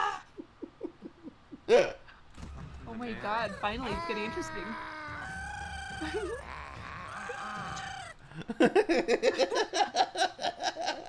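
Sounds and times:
animated birds shrieking: 0:03.0 - 0:08.2.

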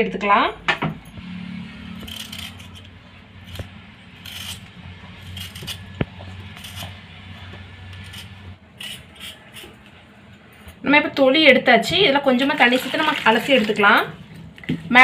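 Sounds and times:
peeler scraping potato skin: 0:01.9 - 0:07.0, 0:07.8 - 0:09.9.

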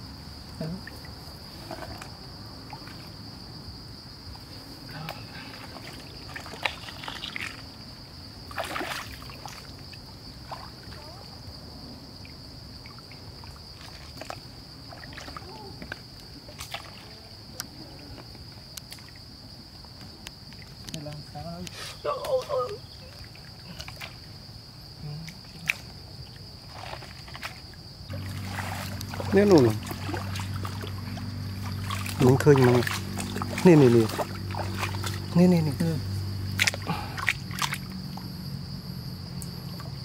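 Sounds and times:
insects droning: 0:00.0 - 0:40.0
water splashing and sloshing: 0:00.4 - 0:03.5, 0:04.2 - 0:40.0.

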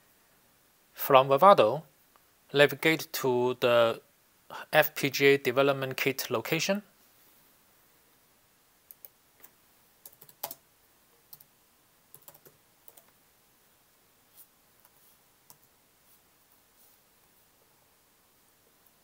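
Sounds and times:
computer keyboard typing: 0:10.0 - 0:10.6, 0:12.1 - 0:13.1.

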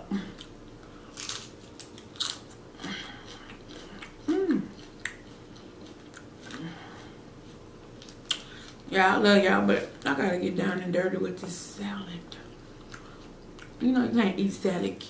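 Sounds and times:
crunching salad: 0:00.4 - 0:06.7.

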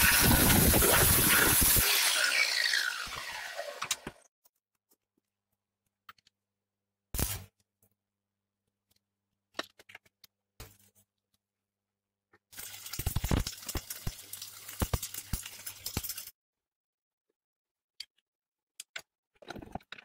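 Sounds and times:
angle grinder spinning down: 0:00.0 - 0:04.2.

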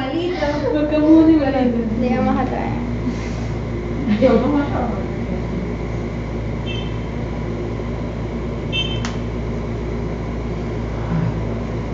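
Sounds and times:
machine hum: 0:00.0 - 0:11.9
sharp click: 0:09.0 - 0:09.2.

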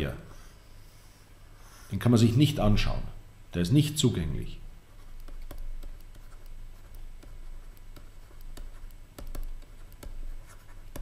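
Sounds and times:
stylus tapping and scratching: 0:04.9 - 0:11.0.

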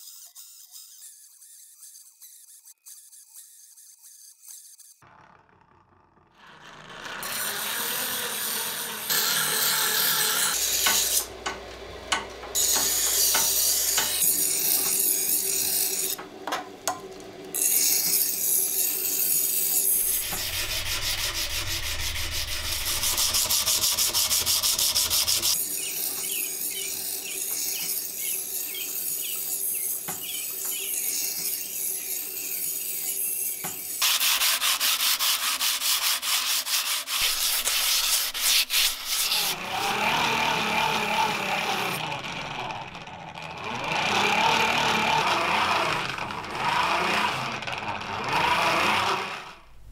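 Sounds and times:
sandpaper and file rubbing steel: 0:00.0 - 0:05.0, 0:17.6 - 0:39.6.

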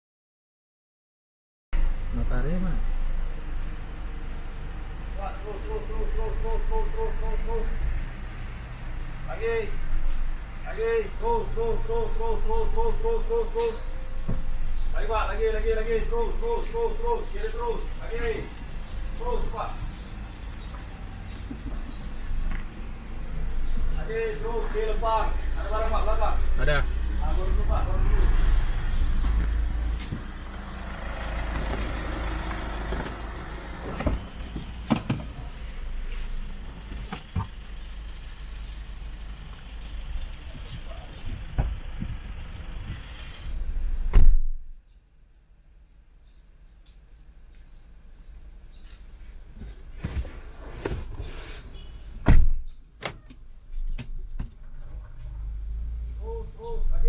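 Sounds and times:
car engine rumble: 0:01.8 - 0:44.9, 0:47.2 - 0:57.0
car door shutting with a thud: 0:41.5 - 0:41.8, 0:44.1 - 0:44.6, 0:52.2 - 0:53.2.

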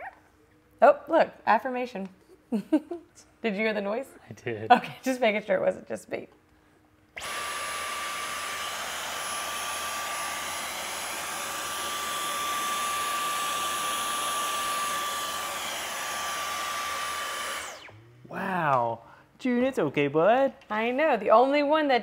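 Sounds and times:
stick vacuum running: 0:07.2 - 0:18.9.

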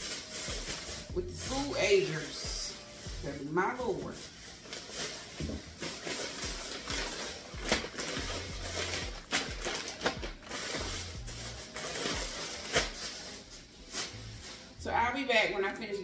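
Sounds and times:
plastic bags rustling: 0:00.0 - 0:15.9
soft background music: 0:00.0 - 0:16.0.

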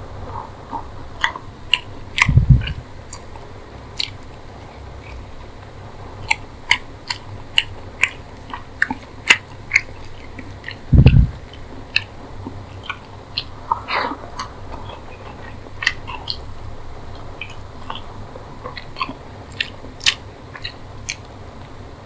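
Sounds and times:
chewing and lip smacking: 0:00.3 - 0:16.5, 0:17.1 - 0:21.8
wet mouth clicks: 0:00.7 - 0:03.4, 0:04.0 - 0:04.3, 0:06.2 - 0:16.5, 0:17.2 - 0:21.3.

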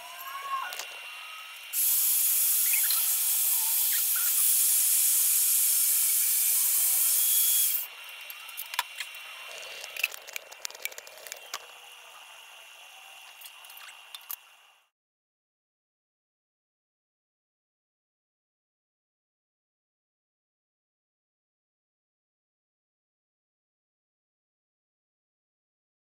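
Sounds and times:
band saw cutting sheet metal: 0:01.7 - 0:07.9.

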